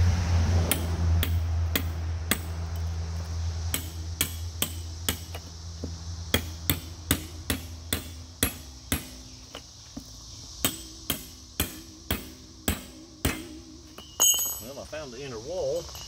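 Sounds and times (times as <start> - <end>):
hammer striking steel chisel: 0.7 - 2.5, 3.7 - 5.4, 6.3 - 9.3, 10.6 - 14.6.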